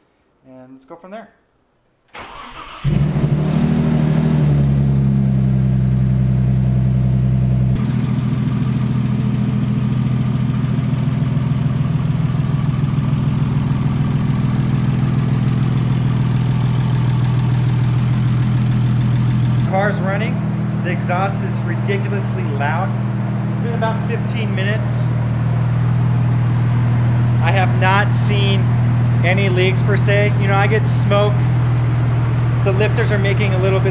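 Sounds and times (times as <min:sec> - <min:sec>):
car engine cranking and idling: 0:02.2 - 0:33.9.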